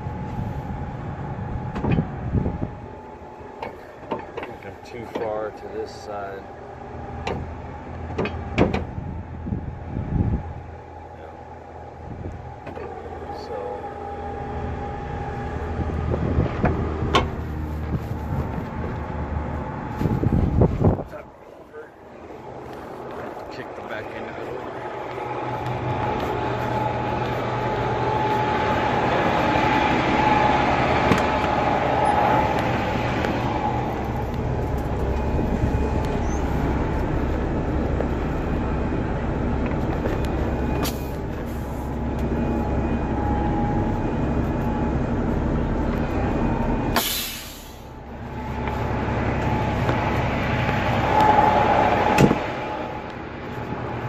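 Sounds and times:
diesel engine running with whine: 0.0 - 54.0
short sharp air hiss: 47.0 - 47.8.

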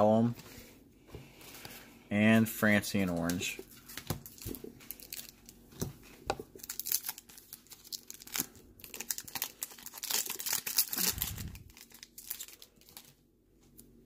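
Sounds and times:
card pack wrapper crinkling and tearing: 3.2 - 5.6, 6.5 - 13.2.

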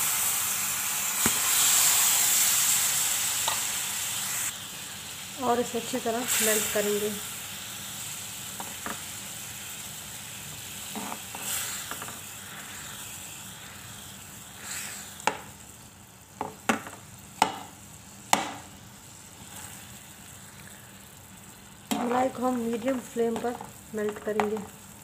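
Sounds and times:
cream sizzling in a pan: 0.0 - 25.0
spoon scraping a pan: 10.8 - 13.0.

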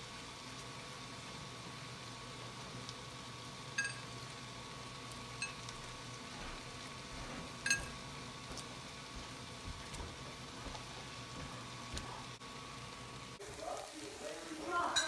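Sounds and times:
low hum and hiss: 0.0 - 15.0
eggshell clinking: 3.8 - 4.2, 5.3 - 5.8, 7.6 - 8.0.

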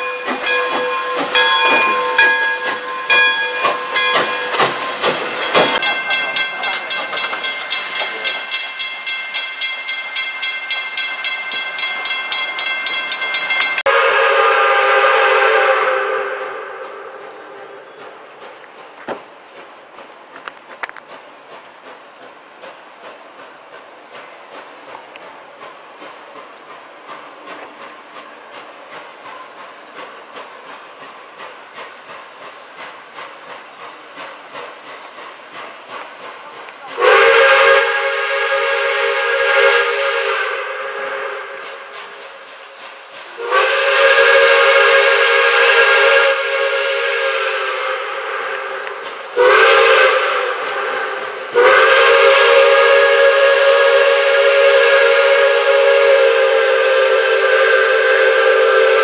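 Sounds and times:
steam whistle blasts: 0.0 - 5.8, 13.8 - 17.9, 37.0 - 41.9, 43.3 - 59.0
steam locomotive exhaust beats: 0.0 - 59.0.

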